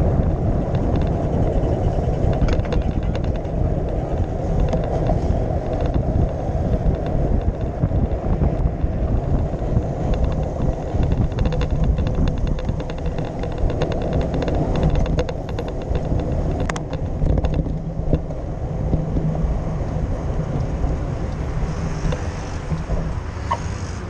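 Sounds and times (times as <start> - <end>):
wind buffeting microphone: 0.0 - 24.0
rapid even ticking: 9.1 - 18.2.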